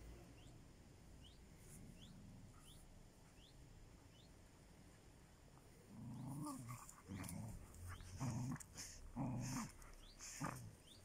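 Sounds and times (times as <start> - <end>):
dogs growling: 5.8 - 11.0.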